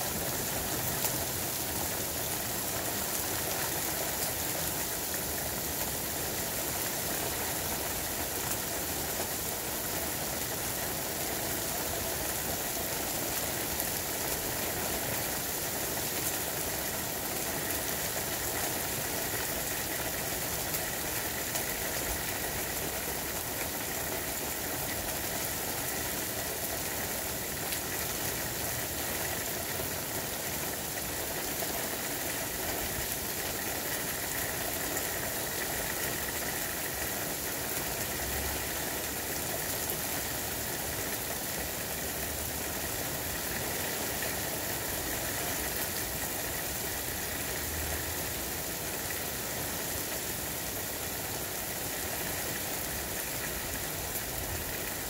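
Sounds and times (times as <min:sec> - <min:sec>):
heavy rain pouring: 0:00.0 - 0:55.0.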